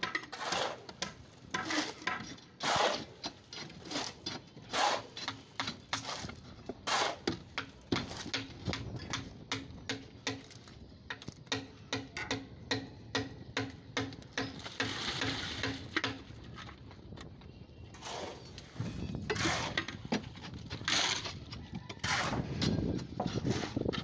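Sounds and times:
wet concrete scraping: 0:00.1 - 0:08.3, 0:14.6 - 0:16.8, 0:18.0 - 0:24.0.

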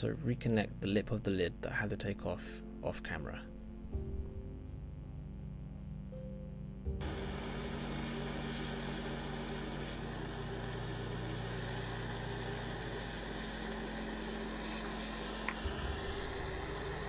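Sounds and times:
low hum: 0:03.4 - 0:17.0
micro torch hissing: 0:07.0 - 0:17.0.

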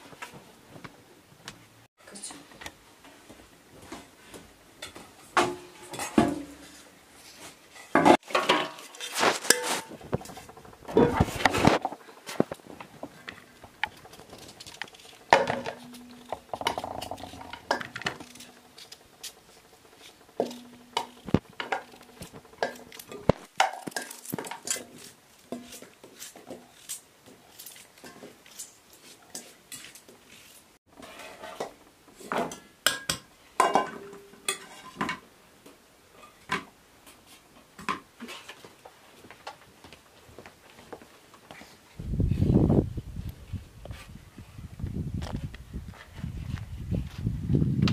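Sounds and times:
pieces clattering in metal bowls: 0:07.8 - 0:25.9
knife scraping potato: 0:25.6 - 0:31.4.

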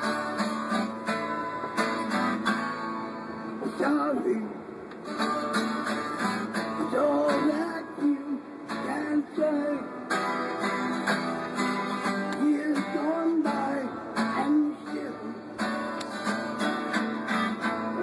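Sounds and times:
acoustic guitar strummed: 0:00.0 - 0:18.0
man singing: 0:03.6 - 0:04.6, 0:06.6 - 0:10.4, 0:12.2 - 0:15.4.

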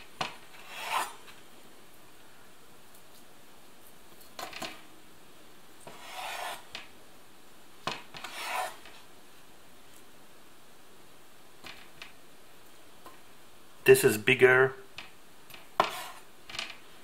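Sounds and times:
knife cutting through potato: 0:00.2 - 0:01.3, 0:05.9 - 0:06.7, 0:08.0 - 0:08.9, 0:15.8 - 0:16.2.

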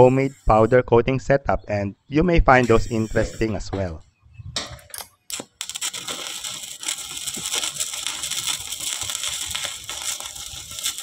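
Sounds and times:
welding arc crackling: 0:04.9 - 0:11.0.

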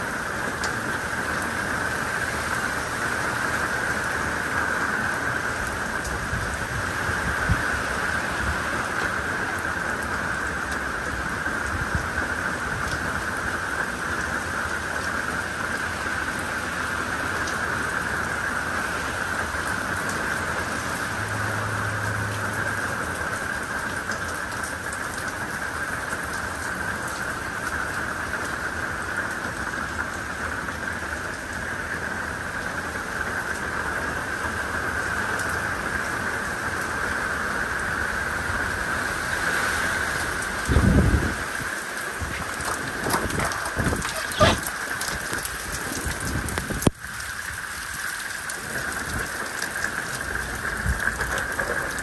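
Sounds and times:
steady rain falling: 0:00.0 - 0:52.0.

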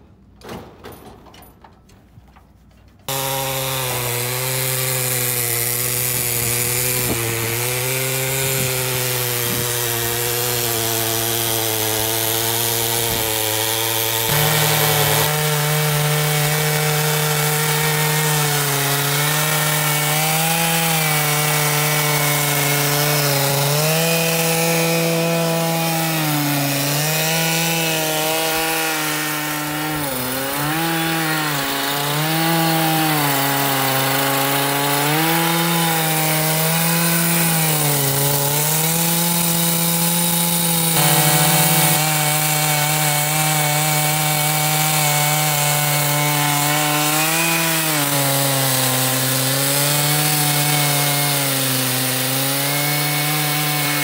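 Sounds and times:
chainsaw cutting log: 0:03.1 - 0:54.0.

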